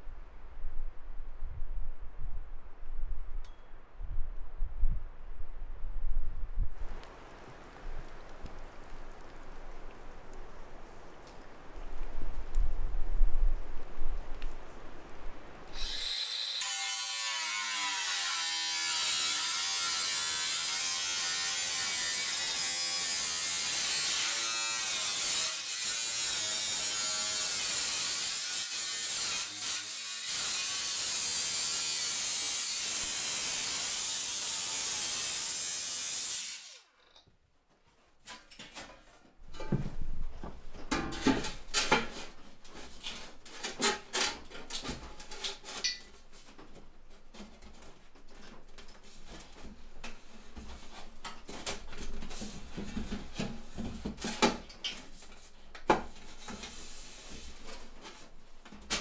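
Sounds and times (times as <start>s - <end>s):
angle grinder sanding steel: 15.8s - 36.8s.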